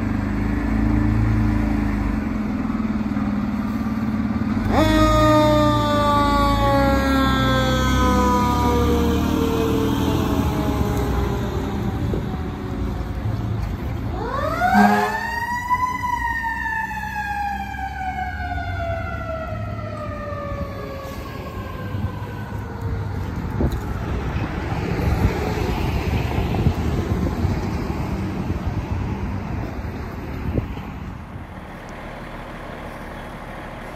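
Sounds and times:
diesel engine rumble: 0:00.0 - 0:33.9
low horn blast: 0:04.6 - 0:12.3, 0:14.5 - 0:15.5.

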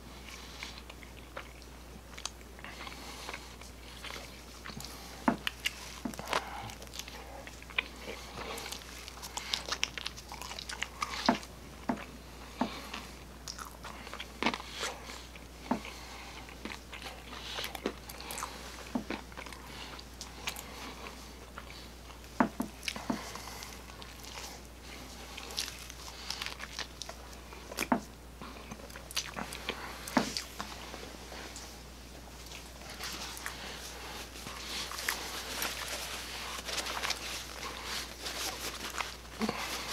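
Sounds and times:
chewing crunchy crust: 0:00.1 - 0:31.8, 0:32.4 - 0:39.9.

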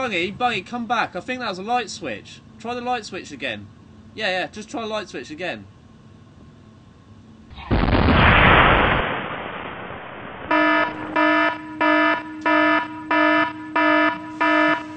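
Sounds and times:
missile launch rushing blast: 0:07.5 - 0:11.2
pulsing alarm beeps: 0:10.5 - 0:14.9.

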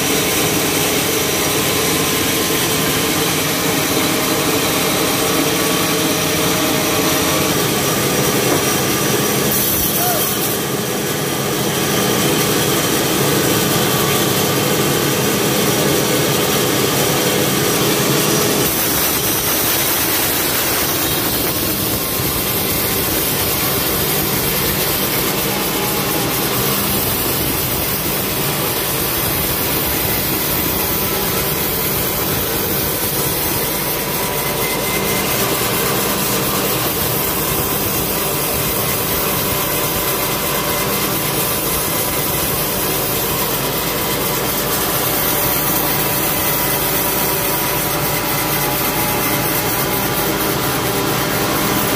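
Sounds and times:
band saw ripping through log: 0:12.4 - 0:51.9.

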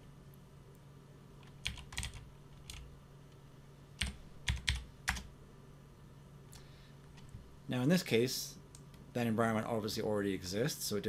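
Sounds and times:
computer keyboard typing: 0:01.4 - 0:02.9, 0:04.0 - 0:05.3.

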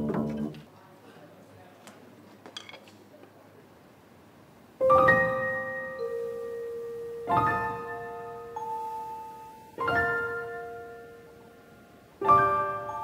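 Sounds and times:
piano chord ringing: 0:04.8 - 0:13.0.

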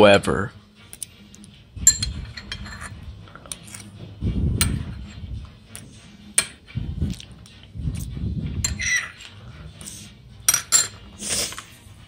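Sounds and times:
cutlery clinking against plate: 0:01.8 - 0:04.0, 0:08.6 - 0:09.4, 0:10.4 - 0:11.7.

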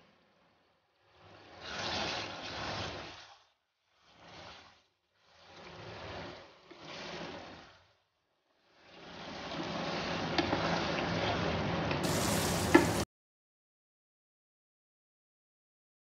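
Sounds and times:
curry sizzling and bubbling in a pot: 0:00.1 - 0:11.4, 0:12.0 - 0:13.1
wooden spoon stirring: 0:12.0 - 0:13.0.

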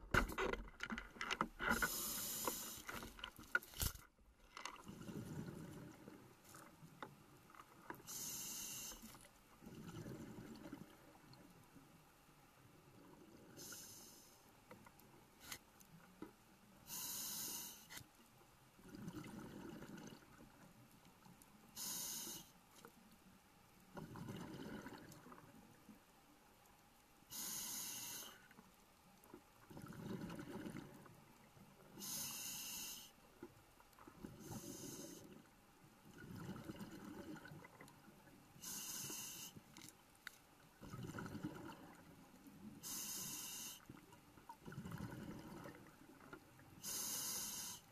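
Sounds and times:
regulator inhale hiss: 0:01.8 - 0:03.0, 0:08.0 - 0:09.2, 0:13.6 - 0:14.5, 0:16.8 - 0:18.0, 0:21.8 - 0:22.6, 0:27.3 - 0:28.5, 0:32.0 - 0:33.2, 0:34.4 - 0:35.4, 0:38.6 - 0:39.6, 0:42.8 - 0:43.9, 0:46.8 - 0:47.9.

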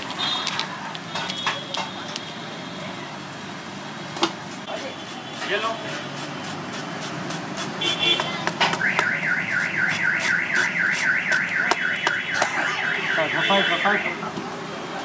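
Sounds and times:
warbling alarm siren: 0:08.8 - 0:14.2.

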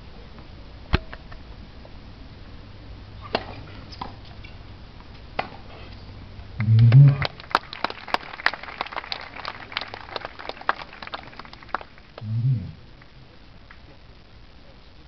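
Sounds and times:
small crowd clapping: 0:06.6 - 0:14.0.

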